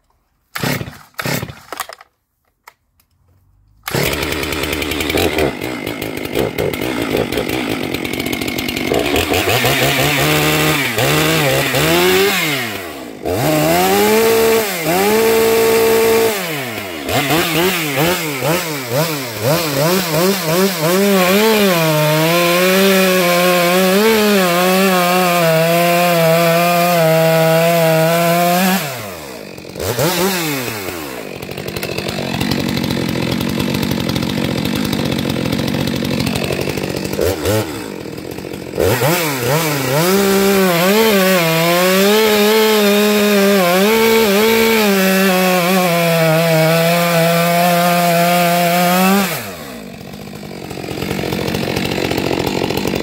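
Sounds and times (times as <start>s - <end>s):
chainsaw cutting logs: 0.0s - 2.8s, 3.5s - 53.0s.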